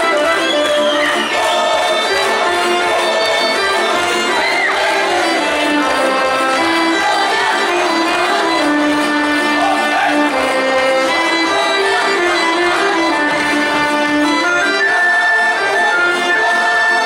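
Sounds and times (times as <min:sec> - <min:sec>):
folk dance music: 0:00.0 - 0:17.0.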